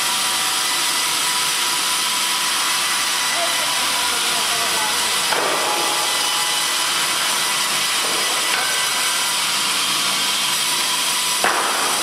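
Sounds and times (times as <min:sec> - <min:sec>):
circular saw cutting wood: 0:00.0 - 0:12.0.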